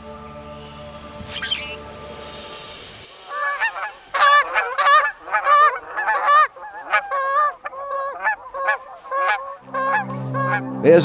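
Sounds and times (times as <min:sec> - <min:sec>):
geese honking: 0:01.2 - 0:01.8, 0:03.2 - 0:11.0.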